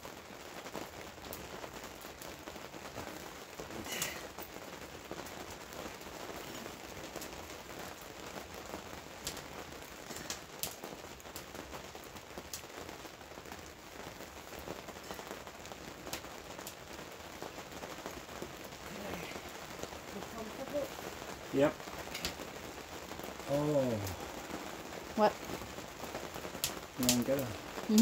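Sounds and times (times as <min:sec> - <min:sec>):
water pattering: 0:27.0 - 0:28.0.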